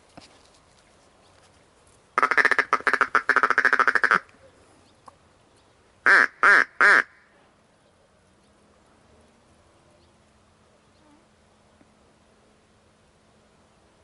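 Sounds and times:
duck quacking: 0:02.2 - 0:04.3, 0:06.0 - 0:07.2.

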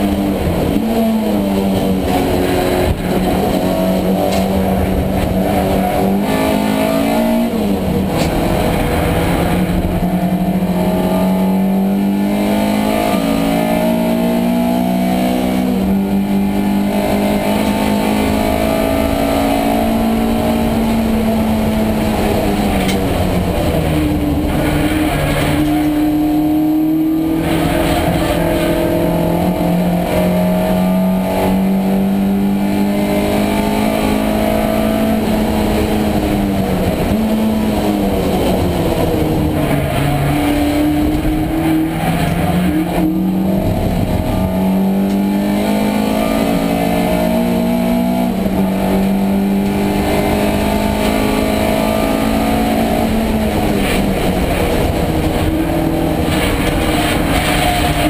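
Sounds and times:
race car engine accelerating: 0:00.0 - 0:58.0.

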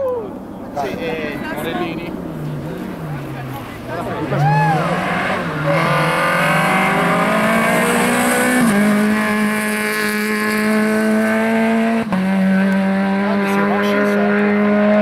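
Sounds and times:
rally car engine at high revs: 0:04.2 - 0:15.0.

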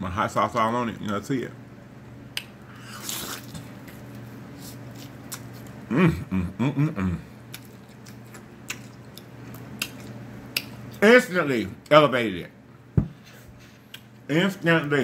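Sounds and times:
chewing with lip smacks: 0:02.3 - 0:05.8, 0:07.4 - 0:11.0
person humming: 0:05.9 - 0:07.4.

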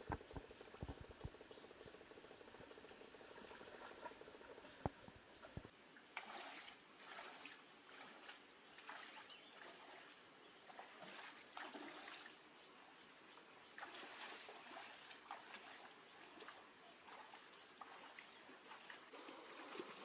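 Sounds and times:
running water: 0:02.2 - 0:20.0
splashing footsteps in stream: 0:06.2 - 0:12.4, 0:13.7 - 0:20.0.

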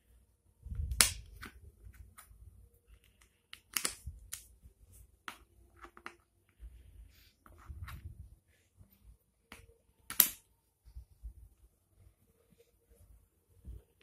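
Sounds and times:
wooden puzzle pieces clicking: 0:03.0 - 0:04.5.

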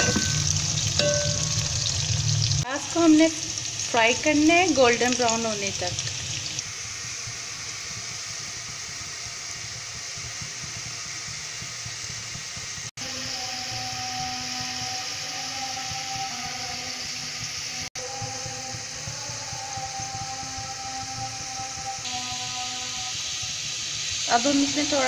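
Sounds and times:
onions sizzling in hot oil: 0:00.0 - 0:12.9, 0:13.6 - 0:25.0.

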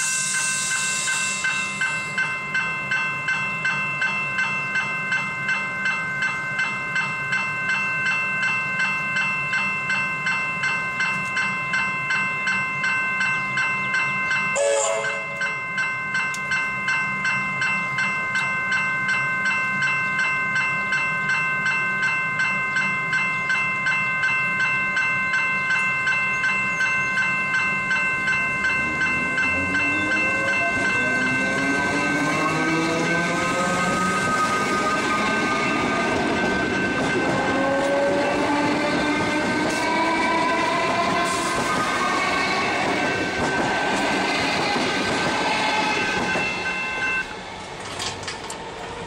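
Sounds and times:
electric train motors whining: 0:00.0 - 0:07.9, 0:28.2 - 0:49.0
level crossing bell ringing: 0:00.0 - 0:47.3.

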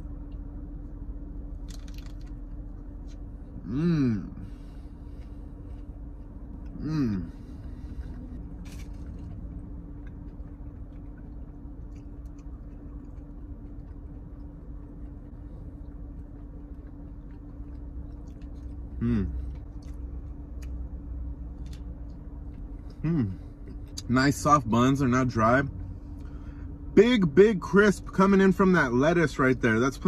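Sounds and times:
person chewing crispy food: 0:01.4 - 0:24.1
person humming mmm: 0:03.6 - 0:04.4, 0:06.7 - 0:07.4, 0:19.0 - 0:19.4, 0:23.0 - 0:23.4.

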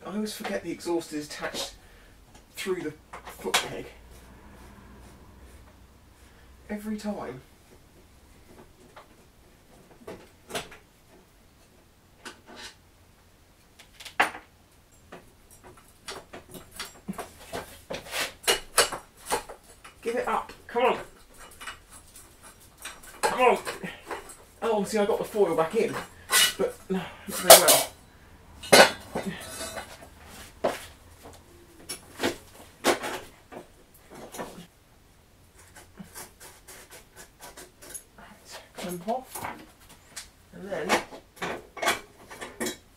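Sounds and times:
tools and metal parts clinking: 0:14.9 - 0:20.0, 0:28.6 - 0:30.0
metal parts clunking: 0:25.2 - 0:28.0, 0:28.6 - 0:30.1.

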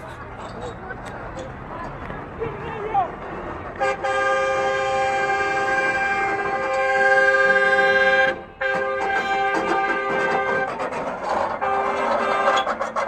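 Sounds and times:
vehicle horn blaring: 0:03.8 - 0:13.0.

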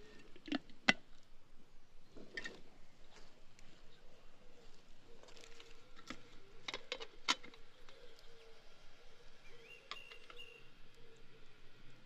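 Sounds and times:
bird chirp: 0:01.7 - 0:12.0
dry twigs crackling: 0:02.3 - 0:08.4.

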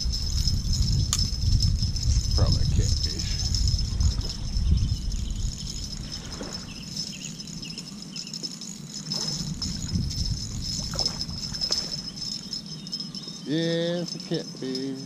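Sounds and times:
wind rumbling on microphone: 0:00.0 - 0:15.0
high-pitched insect buzz: 0:03.4 - 0:15.0.

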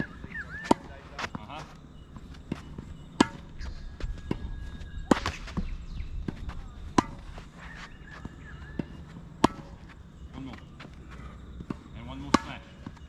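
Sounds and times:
racket hitting tennis ball: 0:00.0 - 0:01.4, 0:02.4 - 0:03.6, 0:04.3 - 0:09.9, 0:11.6 - 0:12.8
footsteps: 0:00.0 - 0:12.0.

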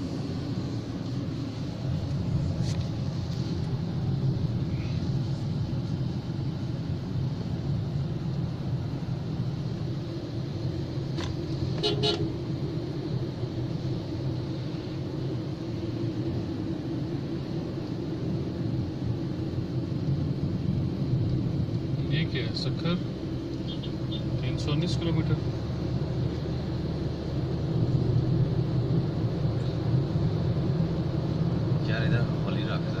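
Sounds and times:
car engine and tyre rumble: 0:00.0 - 0:33.0
vehicle horn toot: 0:11.8 - 0:12.3.

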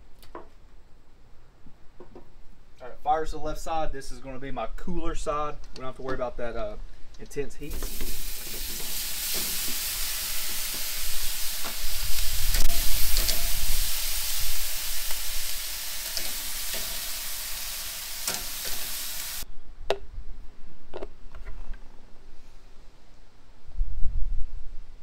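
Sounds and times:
chicken wings sizzling on grill: 0:07.6 - 0:19.4.

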